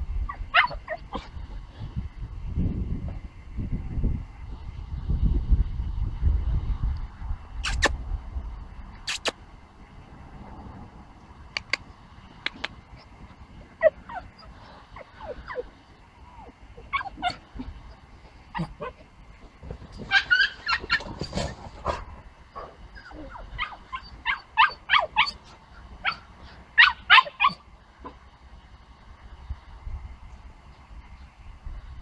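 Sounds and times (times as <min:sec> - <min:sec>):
dog yipping and barking: 0:00.3 - 0:01.3, 0:13.8 - 0:15.7, 0:16.3 - 0:17.7, 0:18.5 - 0:19.0, 0:20.0 - 0:21.6, 0:22.5 - 0:28.2.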